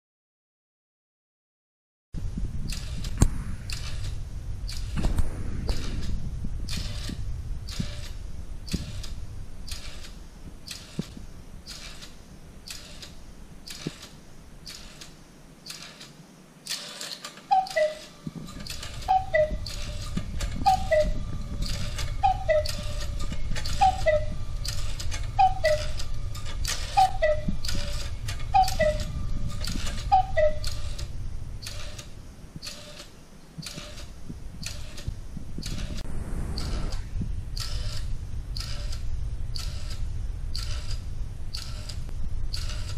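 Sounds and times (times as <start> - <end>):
clock strike mechanism running: 2.7 - 16.1, 16.7 - 37.0, 37.6 - 39.0, 39.6 - 42.9
clock ticking: 12.7 - 14.1, 14.7 - 15.1, 37.6 - 38.0, 38.6 - 39.0
two-note cuckoo calls: 17.5 - 18.2, 19.1 - 19.8, 20.6 - 21.2, 22.2 - 23.0, 23.6 - 24.4, 25.4 - 26.0, 26.9 - 27.5, 28.5 - 29.1, 30.1 - 30.8.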